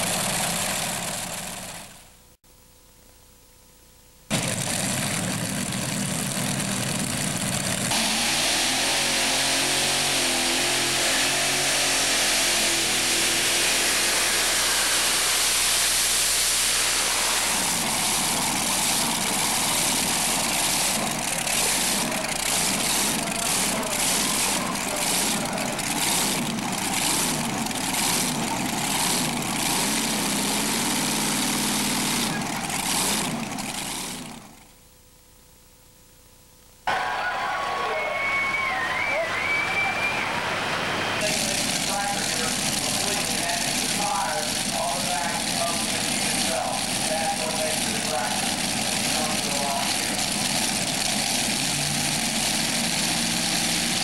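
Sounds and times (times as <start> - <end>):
pulling tractor engines running: 0.0 - 2.1, 4.3 - 34.7, 36.9 - 54.0
steady pitched drone: 10.5 - 27.2.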